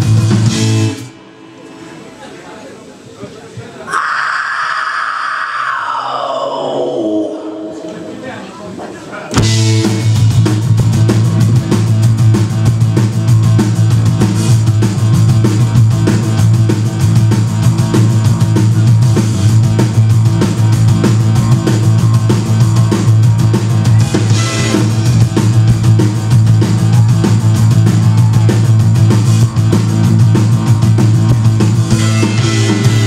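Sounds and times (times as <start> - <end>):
drum kit steady beat: 0.0 - 1.1, 9.3 - 33.0
electric bass: 0.0 - 1.2, 9.3 - 33.0
electric guitar: 0.0 - 1.9, 9.3 - 33.0.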